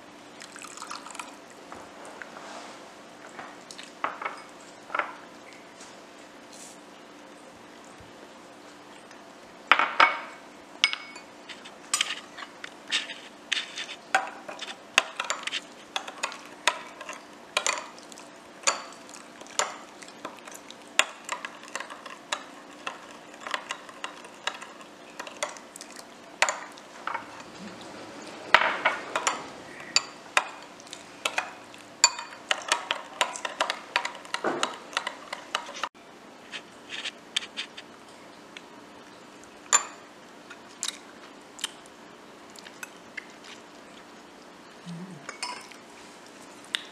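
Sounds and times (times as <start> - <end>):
spoon clinking against glass bowl: 10.8 - 11.3, 31.3 - 34.1, 39.7 - 40.0, 45.3 - 45.7.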